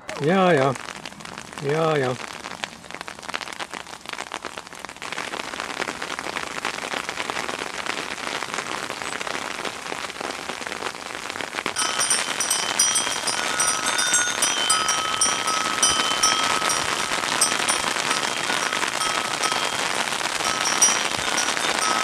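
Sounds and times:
snow pellets falling on gravel: 0.2 - 22.0
high ringing tones: 11.8 - 22.0.

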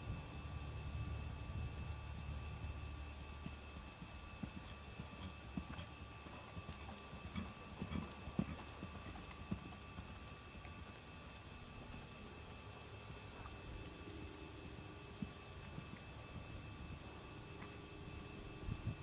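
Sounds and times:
pony hoofbeats on sand: 3.4 - 11.0.

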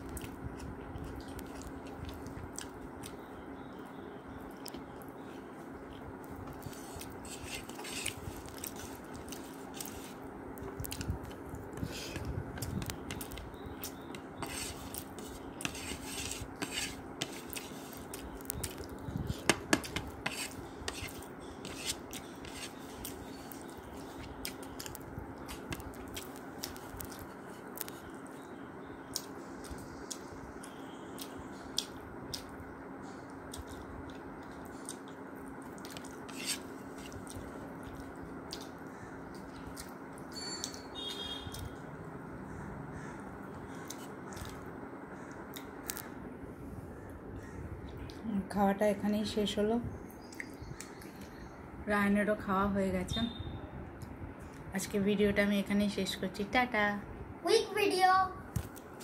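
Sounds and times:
person chewing: 0.0 - 3.2, 5.8 - 28.1, 33.5 - 41.8, 43.7 - 44.7.

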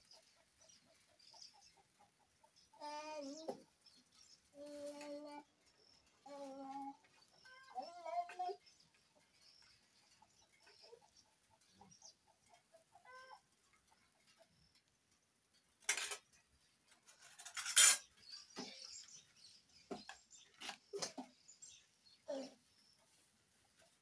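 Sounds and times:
metal spoon scraping pots: 17.1 - 18.1.

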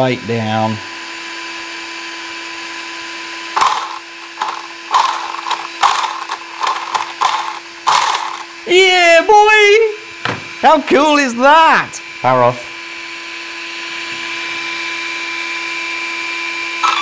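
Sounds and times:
electric motors whirring: 0.3 - 8.8, 12.0 - 17.0
steady hum: 3.5 - 9.0.

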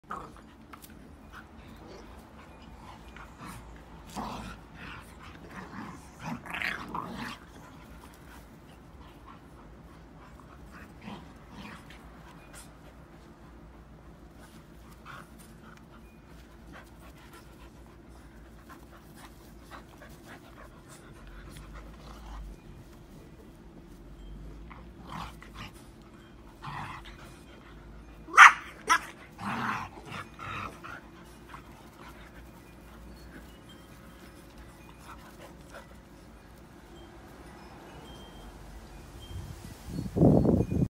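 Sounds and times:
dogs growling in play: 0.0 - 37.0
dogs barking: 28.3 - 29.2.

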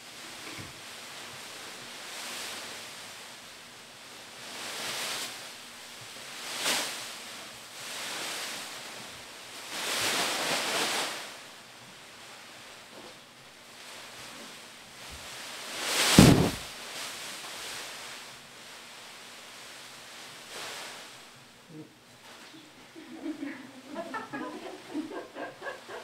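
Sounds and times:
plastic bags rustling: 15.0 - 19.7.

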